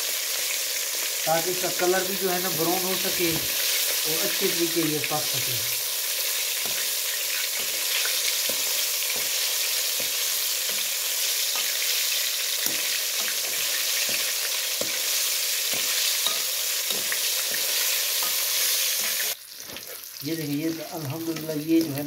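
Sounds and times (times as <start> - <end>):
fish deep-frying sizzle: 0.0 - 22.0.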